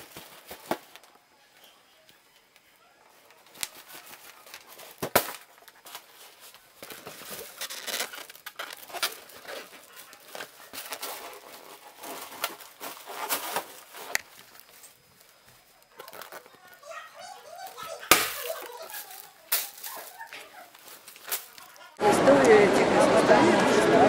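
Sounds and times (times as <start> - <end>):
rubber balloon squeaking: 7.4 - 14.2.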